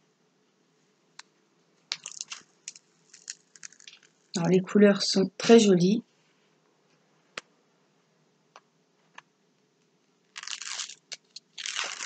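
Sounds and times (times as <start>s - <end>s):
paper rustling: 10.4s - 12.0s.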